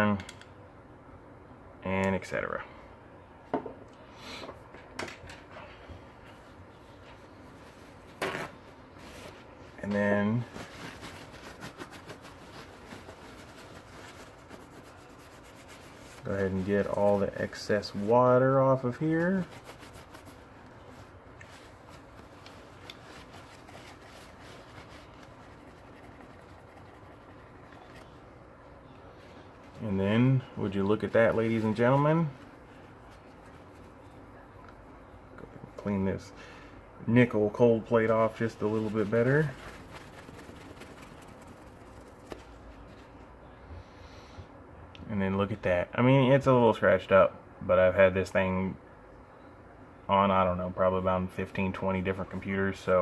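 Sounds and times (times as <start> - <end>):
paper towel rustling and rubbing: 6.2 - 36.2, 37.2 - 43.4, 50.5 - 53.0.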